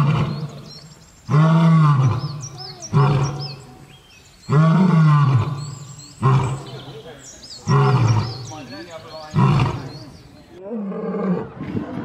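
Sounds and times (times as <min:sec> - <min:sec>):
lion roaring: 0:00.0 - 0:00.6, 0:01.3 - 0:03.6, 0:04.5 - 0:07.0, 0:07.6 - 0:08.5, 0:09.3 - 0:10.0, 0:10.6 - 0:12.0
small birds chirping: 0:00.0 - 0:10.6.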